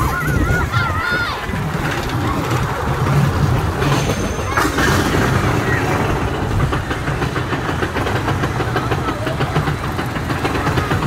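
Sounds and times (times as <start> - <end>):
lift chain rumbling: 0.0 - 11.0.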